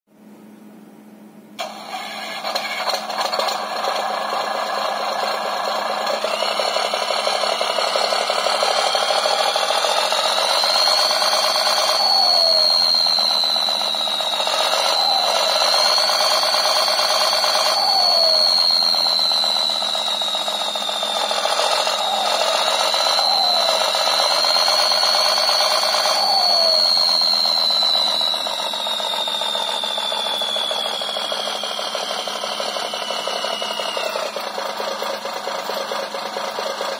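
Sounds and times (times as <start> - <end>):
simulated engine revving: 2.4 - 36.9.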